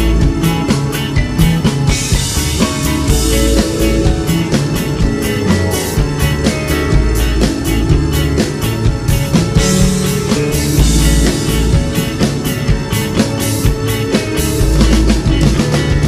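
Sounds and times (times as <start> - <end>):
bass guitar: 0.0 - 16.0
electric guitars: 0.0 - 16.0
steady drum beat: 0.0 - 16.0.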